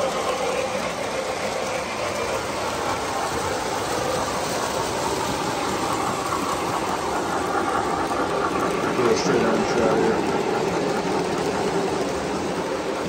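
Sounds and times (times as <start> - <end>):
model train wheels clattering: 0.0 - 13.0.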